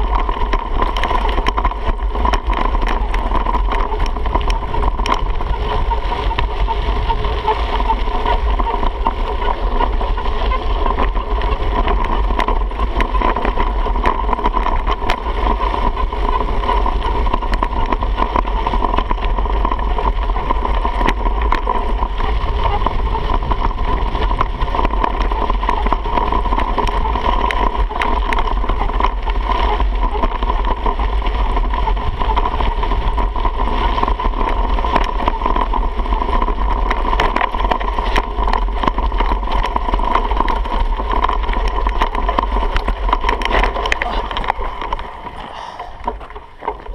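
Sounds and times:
bike clicks and rattles: 0:00.0 - 0:46.9
wind buffeting microphone: 0:00.0 - 0:46.9
steady low rumble: 0:37.8 - 0:46.9.

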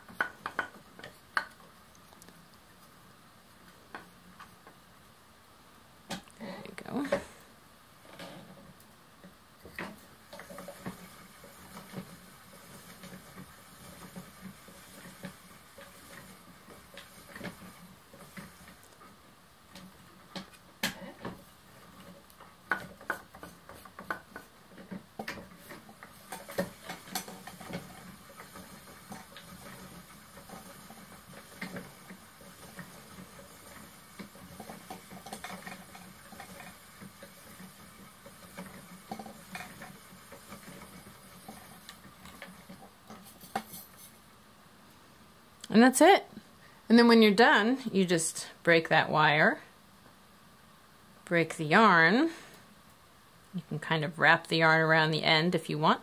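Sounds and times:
spinning wheel hum: 0:21.2 - 0:44.2.

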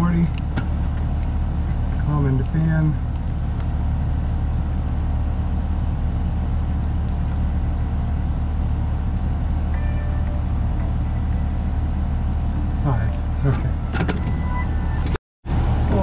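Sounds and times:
low machinery hum: 0:00.0 - 0:16.0
faint high tone: 0:09.7 - 0:15.2.

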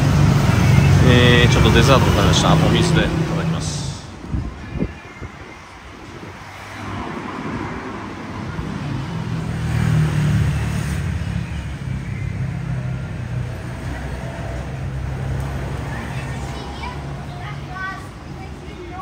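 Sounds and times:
vehicle engine running close: 0:00.0 - 0:04.1
street traffic: 0:00.0 - 0:19.0.

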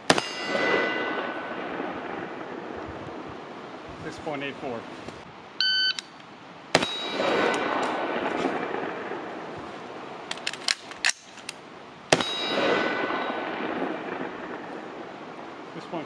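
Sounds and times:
rifle shots with echo: 0:00.0 - 0:03.0, 0:06.7 - 0:09.6, 0:12.1 - 0:15.0
magazine change clicks and clacks: 0:10.3 - 0:11.6.

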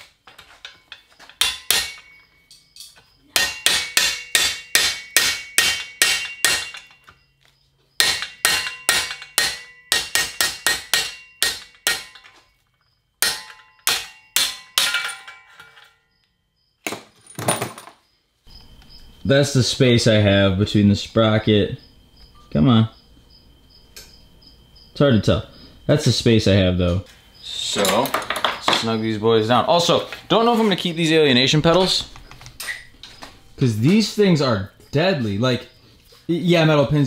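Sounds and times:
hammer striking metal: 0:00.3 - 0:07.1, 0:08.0 - 0:12.5, 0:13.2 - 0:16.0.

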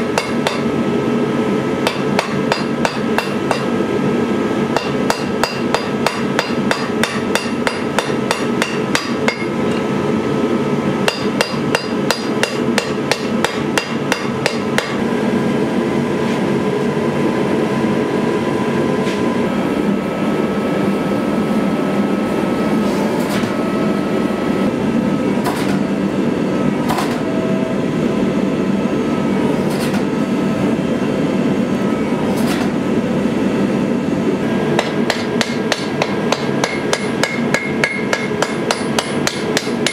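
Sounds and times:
hammer striking blade on anvil: 0:00.0 - 0:00.7, 0:01.8 - 0:03.7, 0:04.8 - 0:09.9, 0:11.1 - 0:15.0, 0:34.8 - 0:39.9.

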